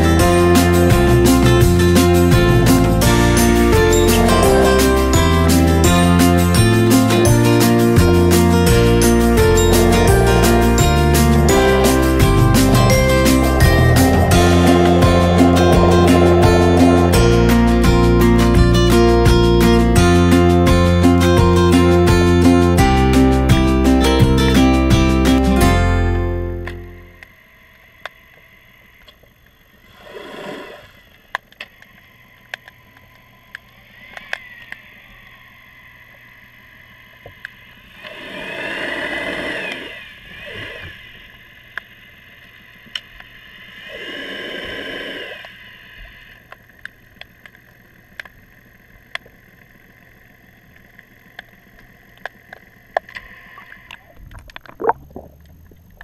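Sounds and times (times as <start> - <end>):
motorboats passing underwater: 0.0 - 23.4, 26.2 - 56.0
faint steady whine: 26.3 - 56.0.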